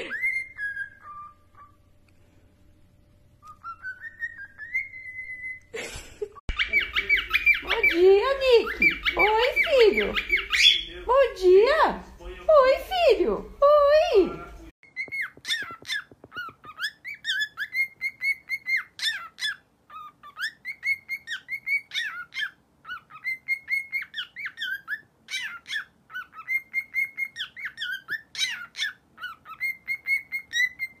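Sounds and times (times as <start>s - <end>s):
cockatiel whistling song: 0.0s - 1.9s, 3.4s - 5.7s, 6.5s - 8.0s, 8.6s - 11.0s, 14.8s - 31.0s.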